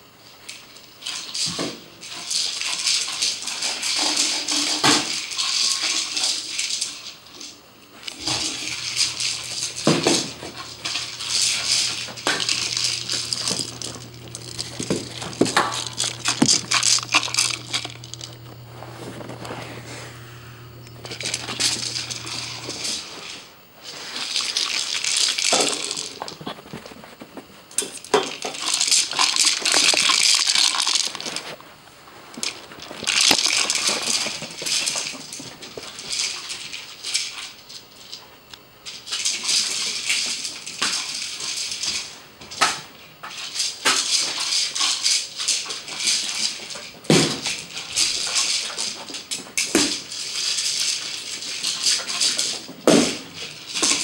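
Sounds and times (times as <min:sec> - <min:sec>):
toy ball rattling on carpet: 0:08.6 - 0:19.6.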